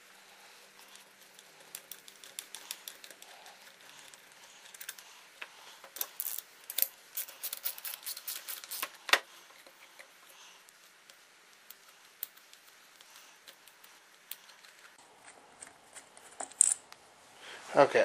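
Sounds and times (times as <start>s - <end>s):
metal parts being handled: 0.8s - 10.1s.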